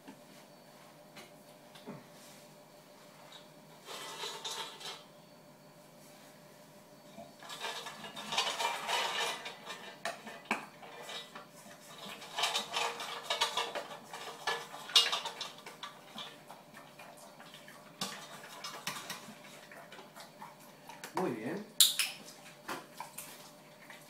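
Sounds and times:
dog eating from metal bowl: 7.3s - 21.1s.

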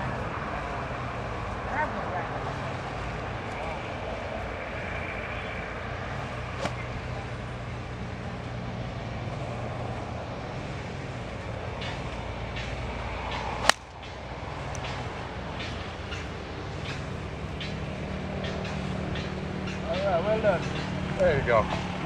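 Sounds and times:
golf club striking ball: 6.5s - 6.9s, 13.4s - 14.0s.

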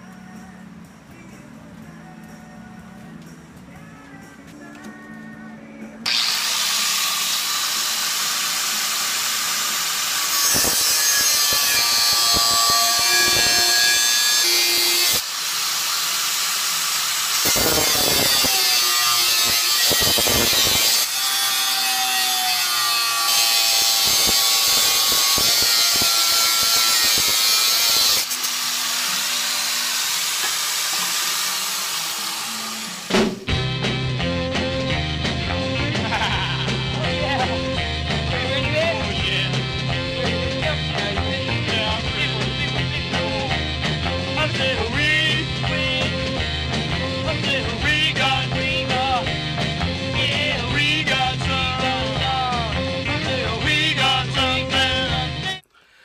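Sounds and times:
angle grinder cutting steel: 6.1s - 33.2s.

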